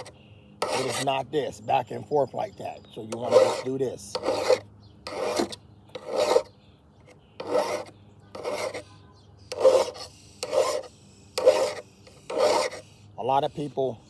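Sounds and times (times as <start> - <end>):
file rasping on metal blade: 0.0 - 1.2, 3.1 - 6.5, 7.4 - 8.9, 9.5 - 13.0.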